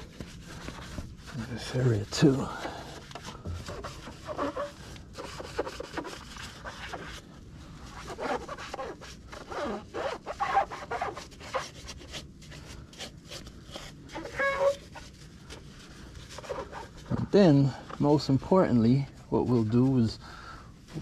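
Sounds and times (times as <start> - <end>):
sponge wiping wet metal: 0.0 - 20.1
sponge squeaks: 3.4 - 7.2, 7.9 - 12.2, 13.0 - 15.2.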